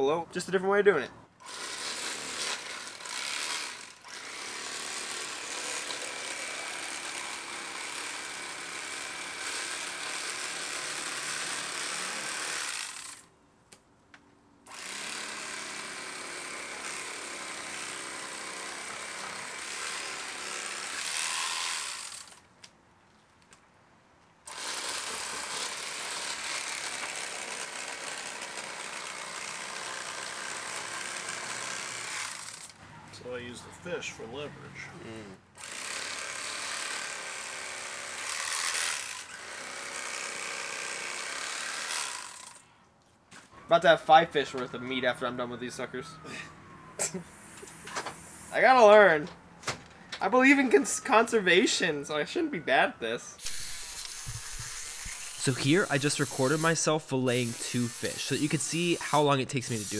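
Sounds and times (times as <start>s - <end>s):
electric fillet knife buzzing: 1.4s - 13.2s, 14.7s - 22.4s, 24.5s - 32.7s, 35.6s - 42.6s, 53.4s - 59.9s.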